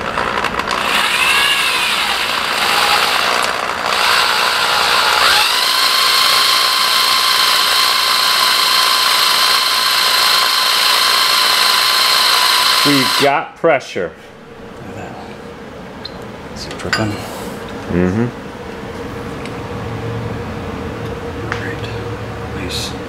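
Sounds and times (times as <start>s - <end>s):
electric drill whining: 0.0s - 13.3s.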